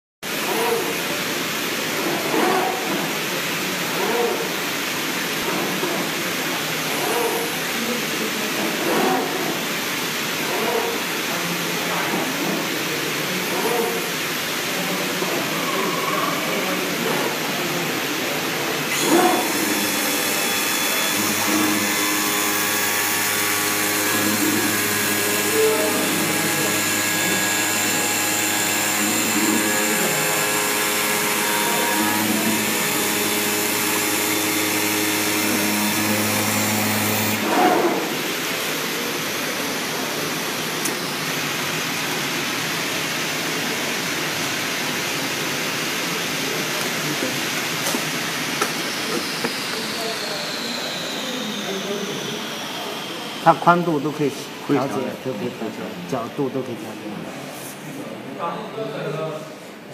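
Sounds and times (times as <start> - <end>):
cutting machine whine and hiss: 0.3 - 57.8
high tone falling: 48.7 - 53.6.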